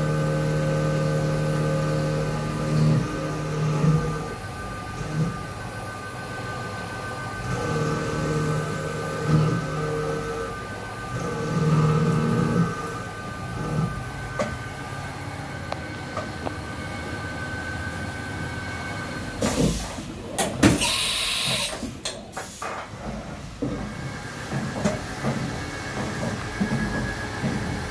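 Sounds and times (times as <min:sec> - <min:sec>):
low machine hum: 0:00.0 - 0:20.8
machining center spindle whine: 0:00.0 - 0:21.9.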